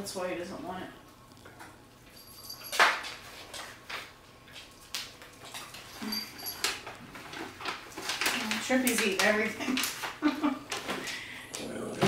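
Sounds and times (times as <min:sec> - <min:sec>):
dogs crunching treats: 0:02.8 - 0:12.0.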